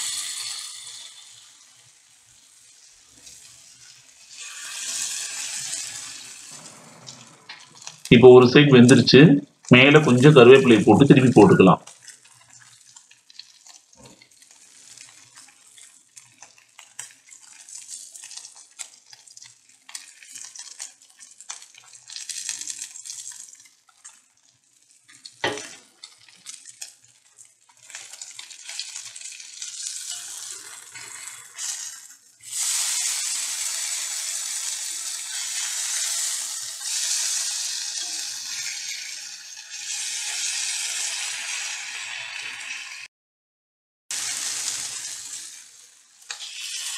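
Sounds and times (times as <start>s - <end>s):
fish sizzling in oil: 0.0s - 8.1s, 11.8s - 43.1s, 44.1s - 46.9s
metal spatula on hot surface: 0.0s - 8.1s, 11.8s - 43.1s, 44.1s - 46.9s.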